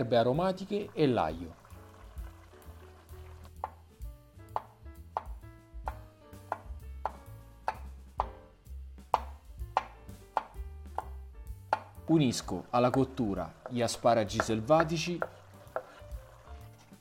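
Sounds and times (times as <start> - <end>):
soft background music: 0.0 - 17.0
knife chopping on wooden board: 3.6 - 3.8, 4.5 - 8.4, 9.1 - 12.0, 12.8 - 16.9.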